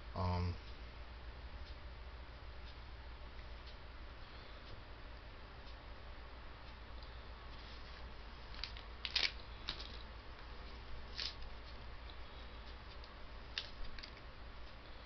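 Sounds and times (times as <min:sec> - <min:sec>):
low steady hum: 0:00.0 - 0:15.0
small things clicking and rustling: 0:07.6 - 0:14.3.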